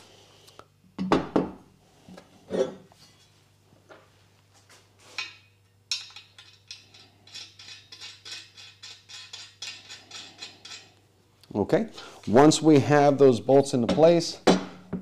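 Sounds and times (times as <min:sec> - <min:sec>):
metallic clicking and clinking: 0:05.2 - 0:11.0.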